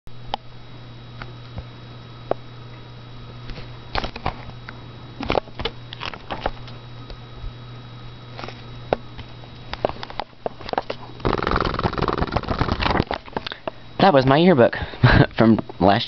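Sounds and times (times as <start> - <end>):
steady low hum: 0.1 - 16.0
book pages turning: 10.8 - 13.2.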